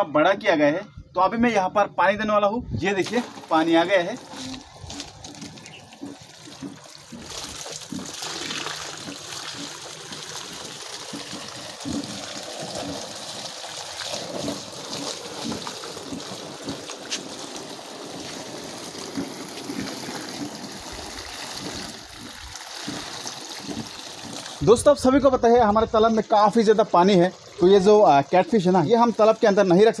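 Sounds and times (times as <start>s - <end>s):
hose water pouring into pond: 2.9s - 30.0s.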